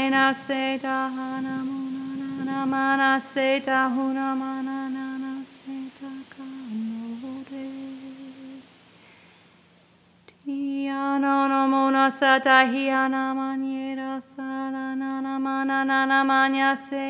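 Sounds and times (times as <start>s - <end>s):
person humming held notes: 0.0s - 8.6s.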